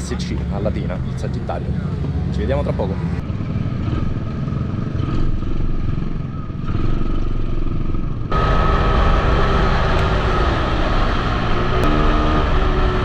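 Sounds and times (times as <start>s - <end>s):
high engine note at speed: 8.3s - 13.0s.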